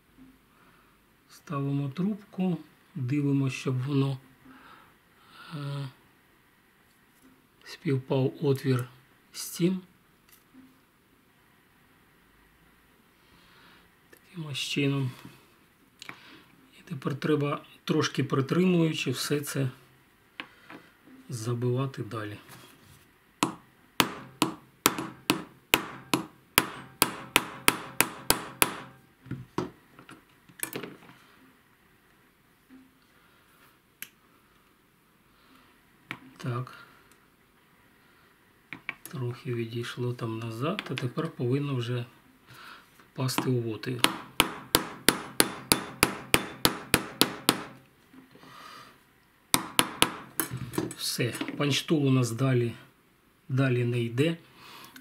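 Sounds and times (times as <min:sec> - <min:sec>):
hammer tapping steel punch: 0:23.4 - 0:29.0, 0:43.4 - 0:47.8, 0:49.5 - 0:51.0.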